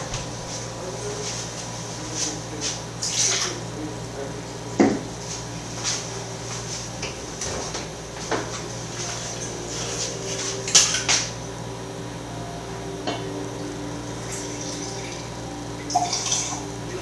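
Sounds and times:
steady low hum: 0:00.0 - 0:17.0
glass bottle clinking: 0:15.9 - 0:16.6.

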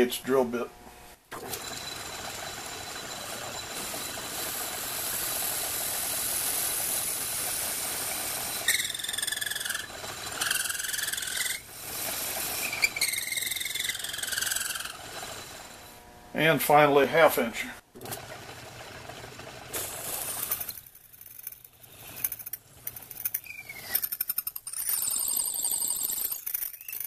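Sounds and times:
drill squealing into wood: 0:01.3 - 0:06.0, 0:08.0 - 0:15.8, 0:20.1 - 0:27.0
lathe whirring: 0:01.3 - 0:17.0, 0:18.0 - 0:26.7.

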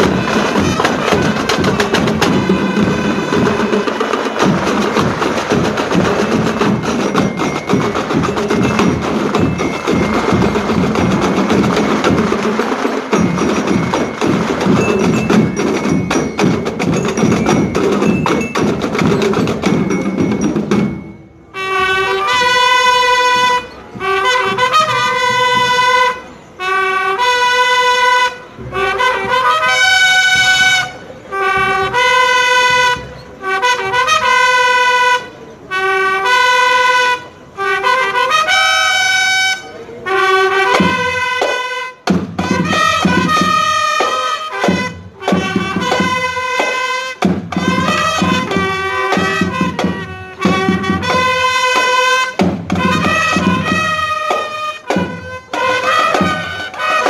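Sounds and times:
brass long held notes: 0:00.0 - 0:06.7, 0:21.5 - 0:57.0
snare and bass drums playing: 0:00.0 - 0:21.2, 0:40.1 - 0:57.0.

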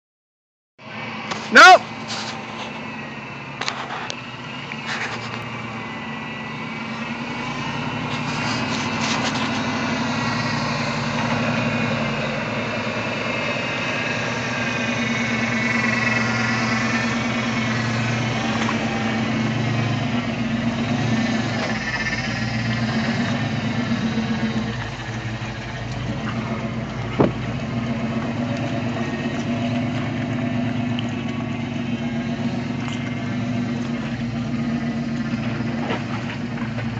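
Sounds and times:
engine running under load: 0:00.8 - 0:36.9.

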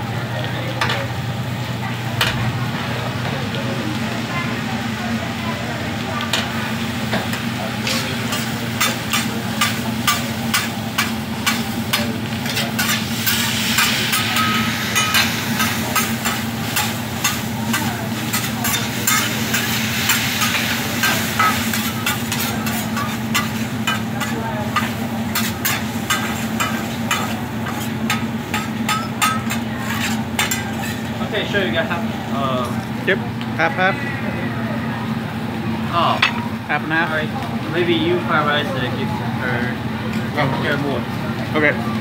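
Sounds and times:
food sizzling on griddle: 0:00.1 - 0:41.9
metal spatulas scraping steel plate: 0:08.3 - 0:31.1.

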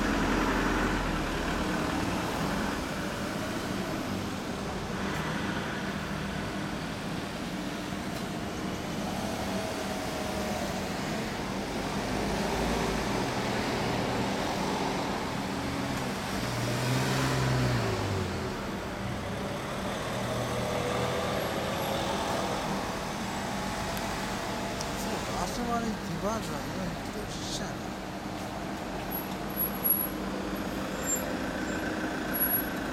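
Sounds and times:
street traffic: 0:00.0 - 0:32.9
vehicle passing by: 0:11.9 - 0:25.5.

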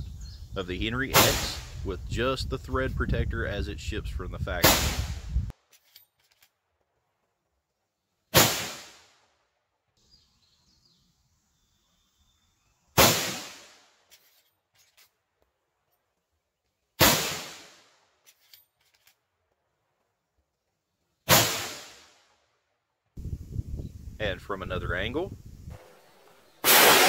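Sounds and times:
rifle shots: 0:01.1 - 0:01.7, 0:04.6 - 0:05.2, 0:08.4 - 0:09.1, 0:13.0 - 0:13.8, 0:17.0 - 0:17.8, 0:21.3 - 0:22.1, 0:26.6 - 0:27.0.

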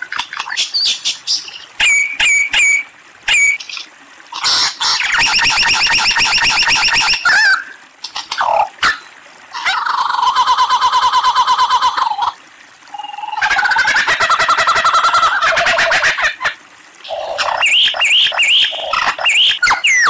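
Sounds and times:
lyrebird singing: 0:17.1 - 0:20.0.

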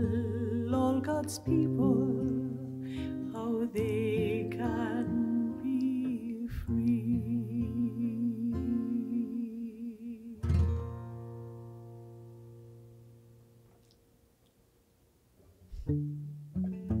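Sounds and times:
woman singing with vibrato: 0:00.0 - 0:10.6.

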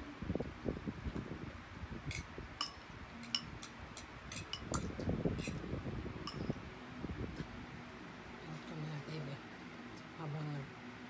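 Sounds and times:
forks clinking on ceramic plates: 0:02.1 - 0:05.6, 0:06.3 - 0:06.5.

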